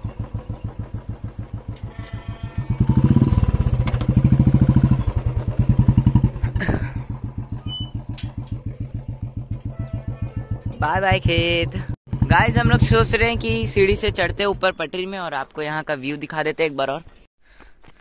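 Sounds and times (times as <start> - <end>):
motorcycle engine idling: 0.0 - 14.8
metal gate clanking: 1.7 - 2.8, 7.5 - 8.7.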